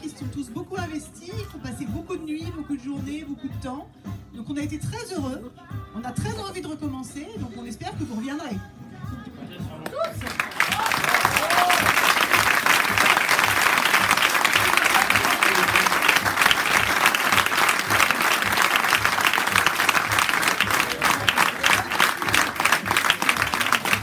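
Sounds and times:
small group applauding: 9.8 - 24.0.

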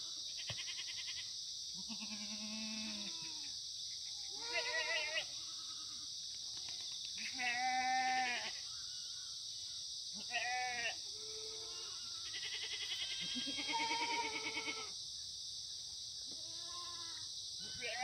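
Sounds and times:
goats bleating: 4.4 - 5.2, 10.2 - 14.9.

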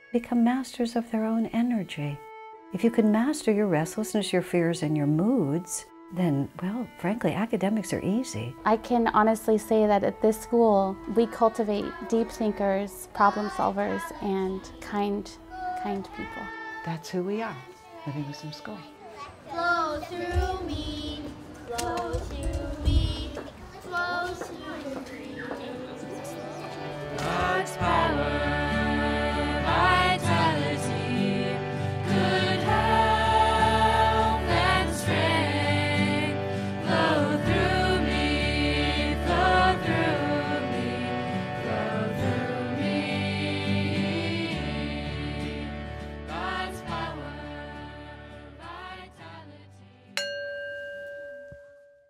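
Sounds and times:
song with singing voices: 19.5 - 49.8
bell-like chime: 50.2 - 52.0.

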